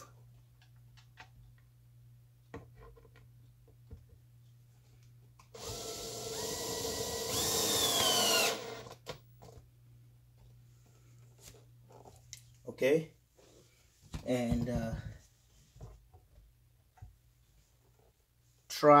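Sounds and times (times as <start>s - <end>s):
power drill whining: 5.6s - 9.1s.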